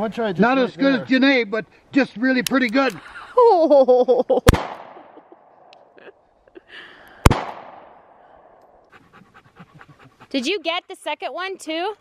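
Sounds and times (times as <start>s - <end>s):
pistol shots with echo: 4.5s - 5.1s, 7.2s - 8.1s.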